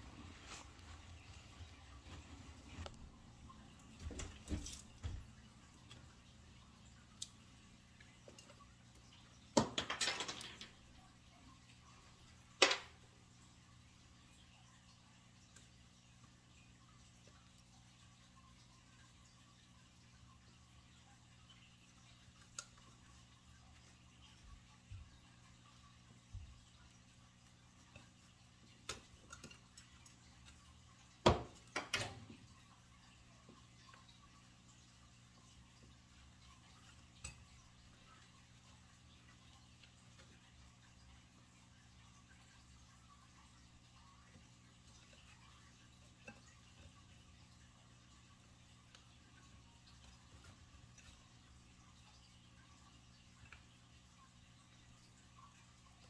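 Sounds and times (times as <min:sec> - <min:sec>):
small metallic clicks and rattles: 0:09.6 - 0:10.8.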